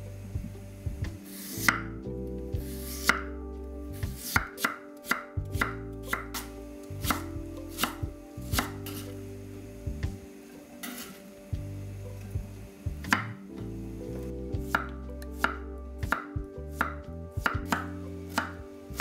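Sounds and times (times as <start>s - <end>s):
knife chopping on wooden board: 1.6s - 1.9s, 4.1s - 9.0s, 14.7s - 19.0s.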